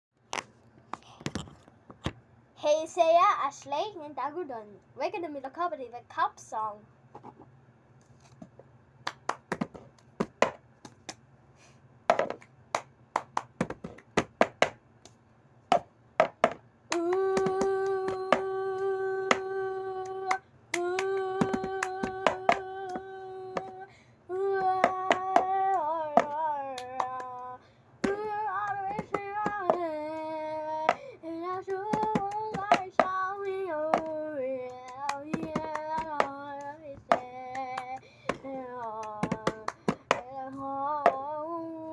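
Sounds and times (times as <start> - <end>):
girl singing: 2.6 - 6.8, 16.9 - 41.9
hand claps: 9.0 - 11.2, 12.3 - 18.5, 19.3 - 23.7, 24.8 - 29.8, 31.9 - 33.2, 33.9 - 40.3
plastic cup tapping: 12.1 - 12.5, 15.7 - 16.6.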